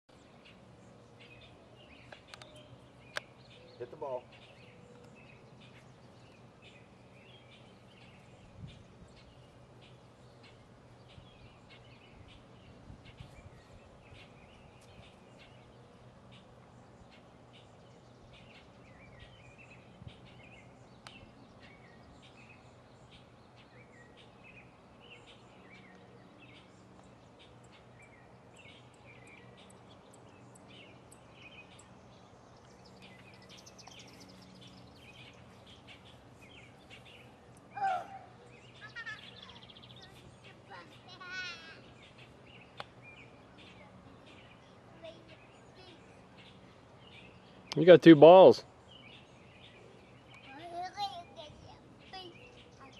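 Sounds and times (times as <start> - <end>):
birds chirping: 0.1 - 52.9
high-pitched bird call: 37.7 - 39.7.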